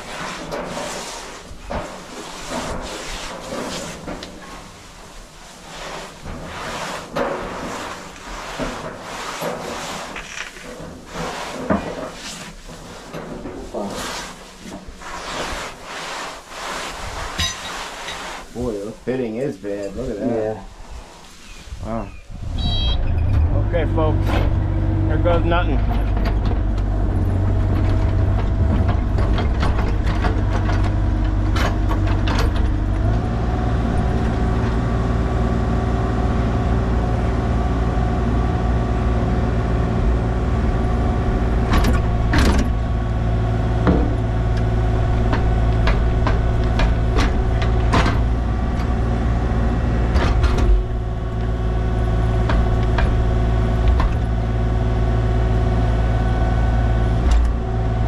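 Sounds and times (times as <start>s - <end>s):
metal clanks and knocks: 6.2s - 14.0s, 17.3s - 18.2s, 25.8s - 33.2s, 41.6s - 43.0s, 43.7s - 49.1s, 50.1s - 51.4s
heavy machine engine running: 22.3s - 58.0s.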